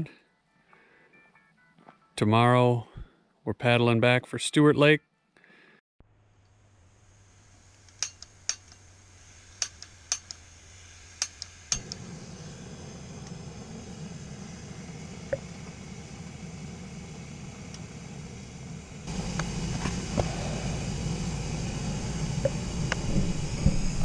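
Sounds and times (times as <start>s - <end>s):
gas burner hissing: 6.3s - 24.0s
metallic clicks of stove: 7.7s - 10.5s, 11.1s - 12.1s, 17.6s - 17.9s.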